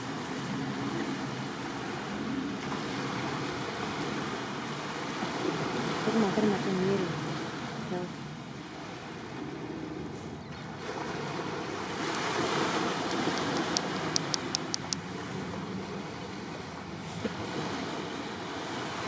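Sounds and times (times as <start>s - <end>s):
sea waves lapping on shore: 0.0s - 19.0s
sharp high clicks: 13.0s - 15.0s.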